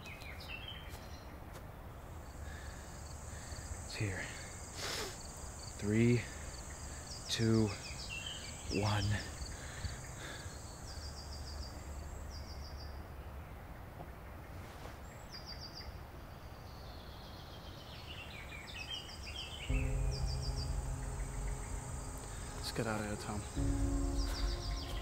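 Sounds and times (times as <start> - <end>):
field ambience: 0.0 - 13.2, 19.7 - 25.0
insects chirping: 2.0 - 12.9, 19.3 - 25.0
bird singing descending notes: 19.4 - 25.0
low steady hum: 19.7 - 25.0.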